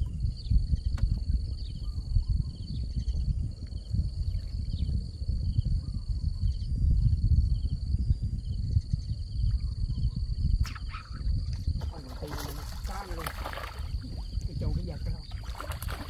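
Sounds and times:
low rumble: 0.0s - 16.0s
insects buzzing: 0.2s - 16.0s
insect trilled chirp: 8.5s - 16.0s.

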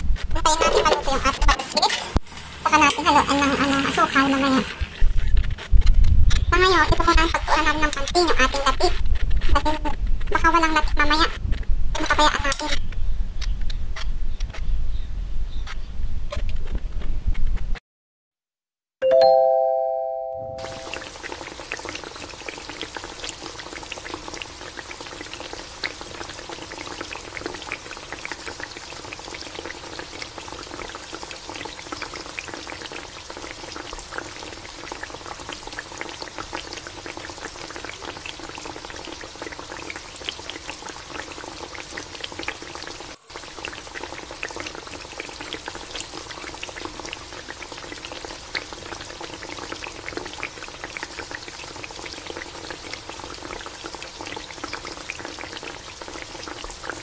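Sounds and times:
rice bubbling in a pan: 20.6s - 57.0s.

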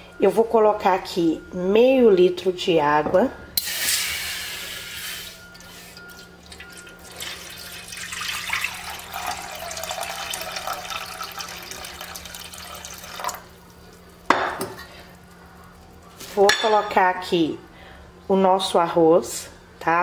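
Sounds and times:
water pouring into a metal pan: 6.1s - 14.1s.

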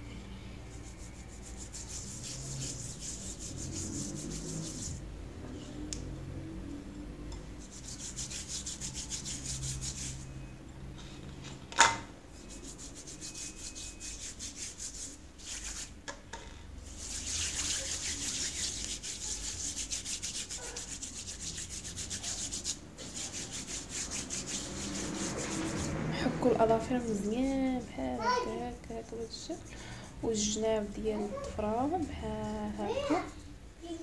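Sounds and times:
hands scrubbing with gritty coffee: 0.7s - 5.0s, 7.6s - 10.4s, 12.4s - 16.0s, 16.8s - 30.8s.

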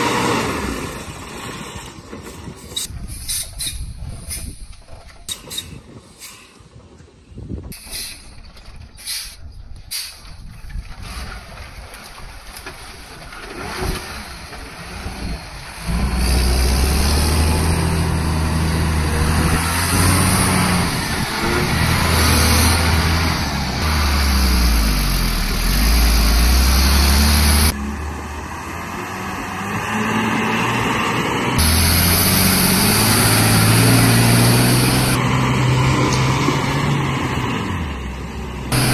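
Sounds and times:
truck diesel engine labouring: 0.0s - 7.0s, 11.0s - 38.9s.

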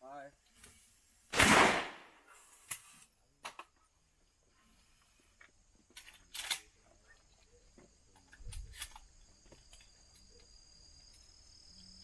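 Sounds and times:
high insect drone: 4.1s - 12.0s.

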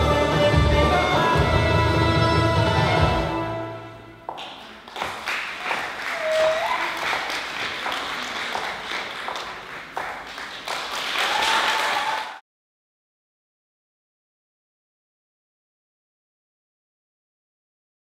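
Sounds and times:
audience applauding: 4.3s - 12.4s.

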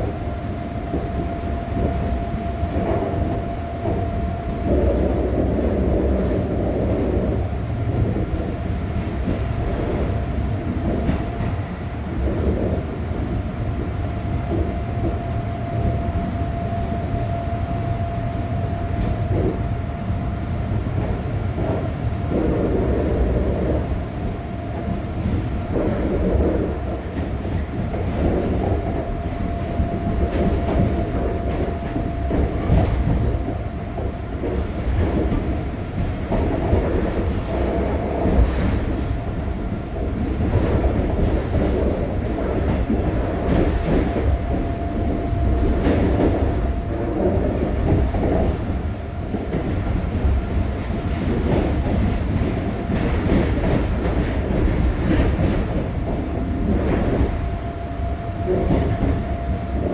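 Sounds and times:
train wheels rumbling on rail: 0.0s - 59.9s
clacks over rail joints: 24.7s - 59.9s.

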